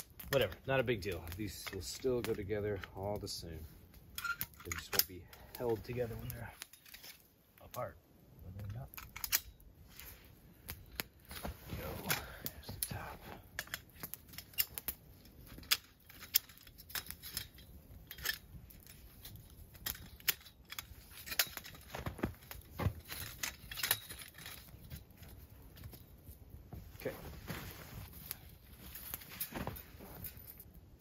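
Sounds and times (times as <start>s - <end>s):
clicks and knocks of camp gear: 8.7s - 30.8s.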